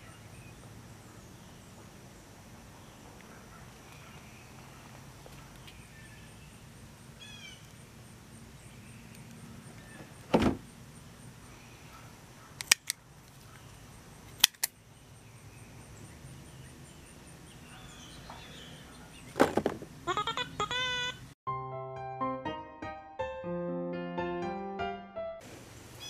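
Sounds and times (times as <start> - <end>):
low outdoor hiss: 0.0 - 21.4, 25.4 - 26.0
heavy short thump: 10.3 - 10.6.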